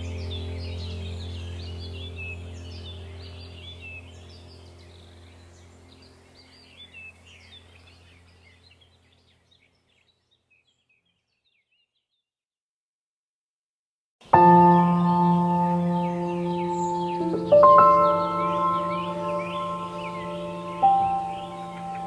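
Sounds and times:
low steady hum: 0.0 - 9.8, 14.4 - 22.0
small birds chirping: 0.0 - 12.3, 14.2 - 22.0.

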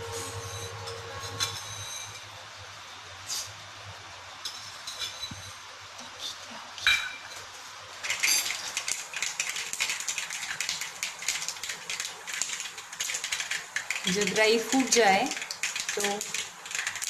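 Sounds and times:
mustard seeds popping in hot oil: 8.0 - 17.0.

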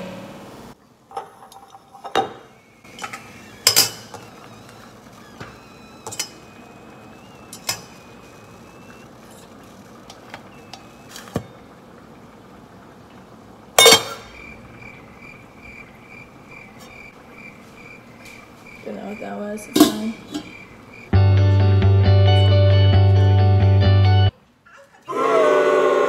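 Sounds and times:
pot lid and utensils clinking: 13.8 - 14.3, 19.7 - 20.5.

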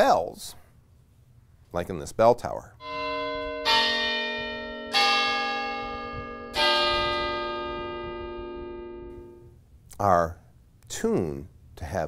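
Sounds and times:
tower bells ringing: 2.8 - 9.6.

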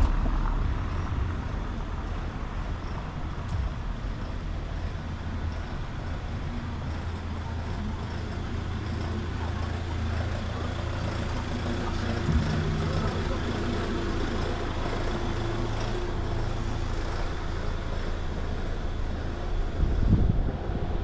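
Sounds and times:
large vehicle engine running: 0.0 - 21.0
low rumble: 0.0 - 21.0
street noise: 0.0 - 21.0.

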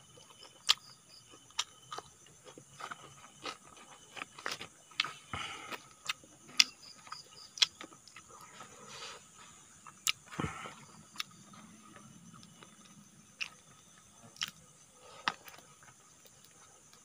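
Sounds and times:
crisp chewing and mouth smacks: 0.2 - 8.5, 9.8 - 10.4, 11.1 - 13.6.

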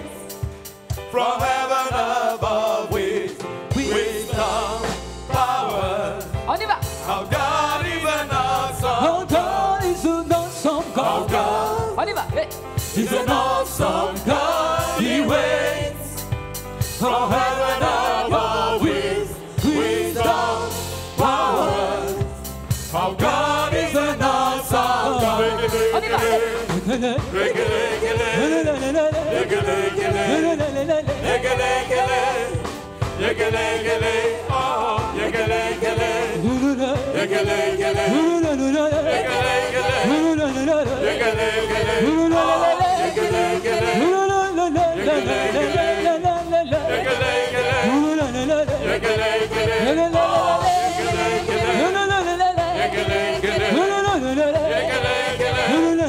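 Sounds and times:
group of voices singing: 0.0 - 56.0
live band with bass and percussion: 0.0 - 56.0
woman leading singing: 25.2 - 27.6.

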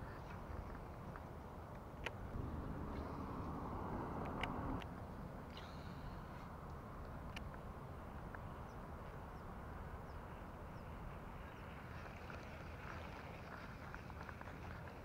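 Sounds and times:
wind rumble on microphone: 2.1 - 5.4.

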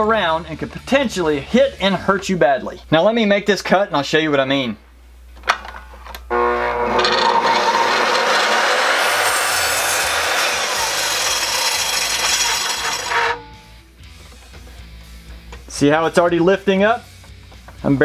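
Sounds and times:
miter saw cutting wood: 6.3 - 13.5.

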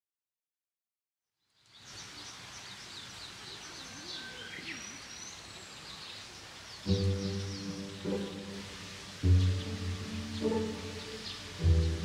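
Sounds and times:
small birds chirping: 1.4 - 12.0
music with low sustained chord: 6.9 - 12.0.

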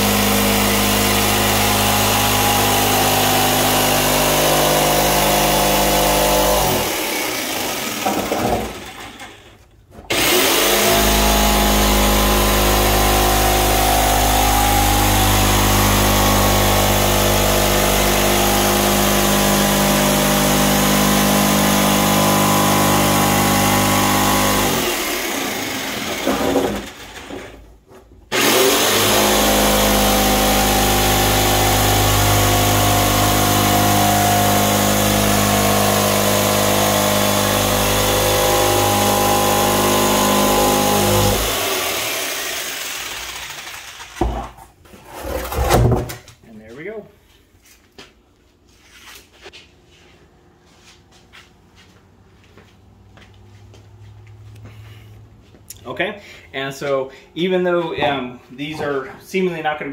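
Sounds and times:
jigsaw cutting through plastic: 0.0 - 27.6, 28.3 - 44.6.

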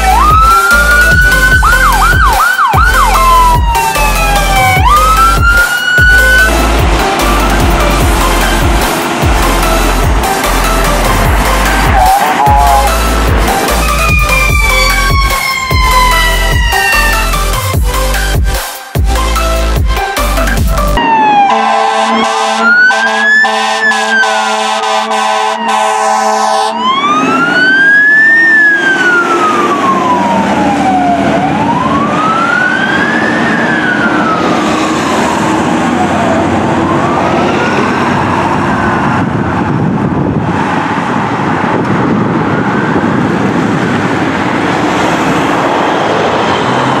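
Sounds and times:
fire engine siren wailing: 0.0 - 18.4, 19.2 - 47.0
music: 0.0 - 21.0
road traffic noise: 0.0 - 47.0.

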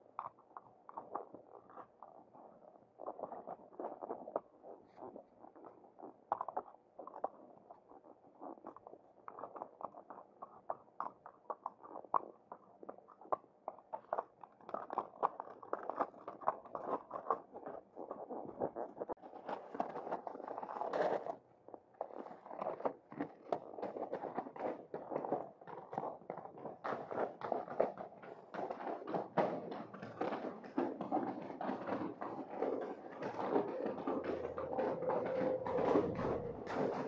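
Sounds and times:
horse hooves on stony ground: 23.8 - 37.0.

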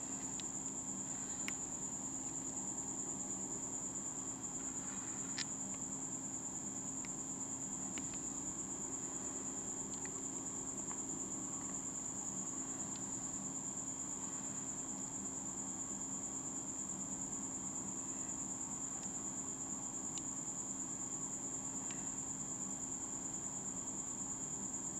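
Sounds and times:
cricket trilling: 0.0 - 24.9
faint low hum: 0.0 - 24.9
faint clicks: 7.9 - 8.3, 9.9 - 10.2.

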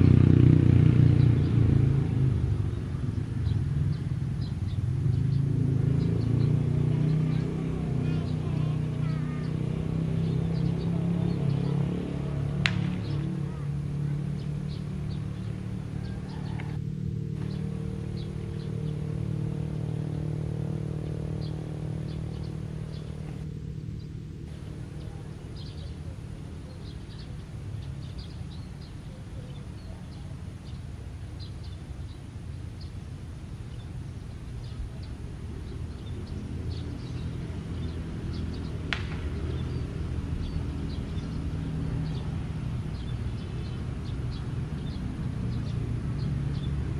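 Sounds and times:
locomotive engine droning: 0.0 - 46.9.

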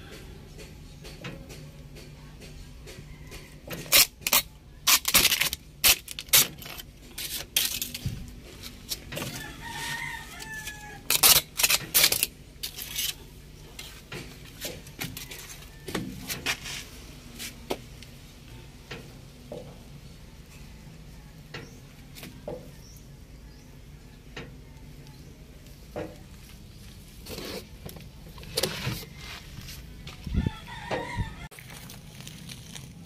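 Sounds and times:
plastic sheet peeling and tearing: 3.8 - 8.2, 11.0 - 13.2, 31.6 - 33.0.

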